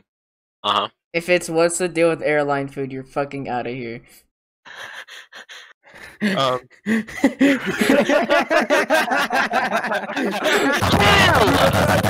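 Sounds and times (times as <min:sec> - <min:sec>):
warbling vocal noises: 0:00.6 - 0:00.9
person gasping breathily: 0:04.7 - 0:08.0, 0:10.1 - 0:10.8.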